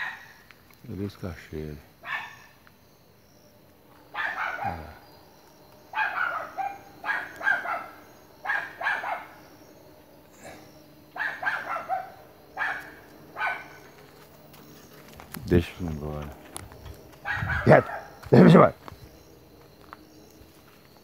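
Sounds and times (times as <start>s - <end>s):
dogs barking: 0.0s - 0.4s, 2.0s - 2.6s, 4.0s - 5.1s, 5.8s - 9.6s, 10.4s - 14.0s, 17.1s - 18.8s.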